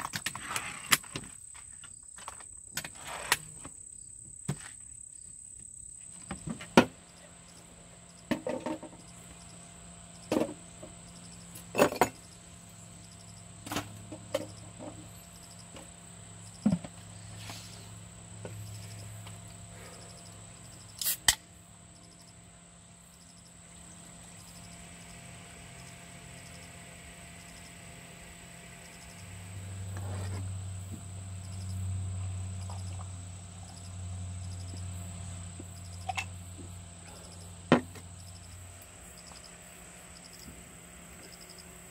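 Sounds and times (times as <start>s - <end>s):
high insect buzz: 0.0s - 41.9s.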